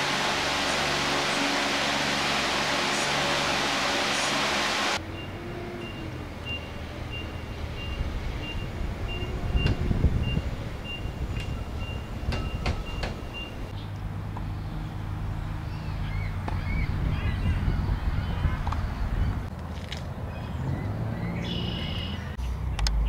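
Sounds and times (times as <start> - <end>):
low hum: 0.0 - 15.8
low steady rumble: 0.0 - 19.5.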